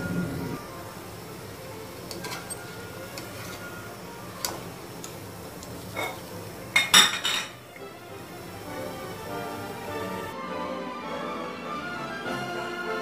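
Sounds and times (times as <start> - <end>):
spider strainer clinking on metal wok: 5.9 - 7.6.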